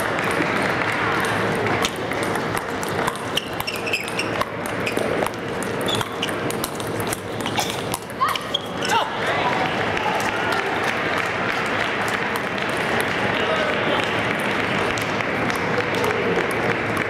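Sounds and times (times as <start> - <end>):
crowd murmur: 0.0 - 17.0
short high squeaks: 3.3 - 5.1.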